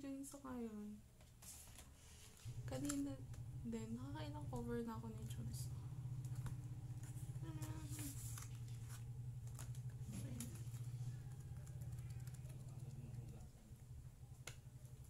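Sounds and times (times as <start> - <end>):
steady low hum: 0.0 - 15.0
paper rustling pages: 1.4 - 3.0, 6.2 - 12.6.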